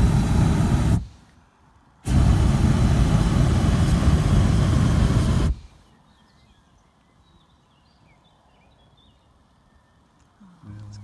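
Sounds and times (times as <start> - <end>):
propane burner roaring: 0.0 - 1.2, 2.0 - 5.7
faint bird chirps: 5.6 - 11.0.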